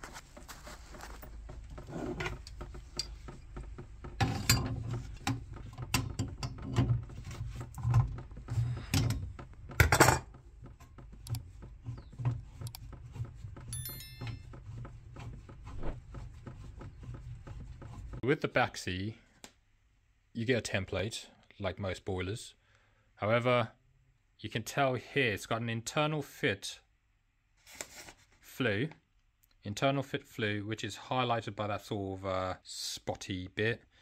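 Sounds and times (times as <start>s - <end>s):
metallic clicks and clanks of pipe grips: 2.2s - 3.4s.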